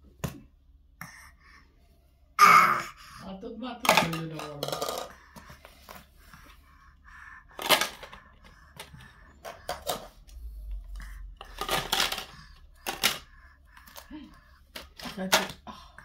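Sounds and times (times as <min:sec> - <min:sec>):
plastic rings clacking: 0:03.8 - 0:05.6, 0:11.4 - 0:14.0.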